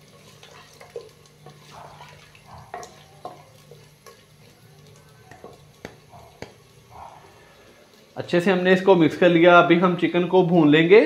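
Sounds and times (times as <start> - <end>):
light frying in oil: 0.0 - 11.0
wooden spoon knocking clay pot: 5.3 - 6.6.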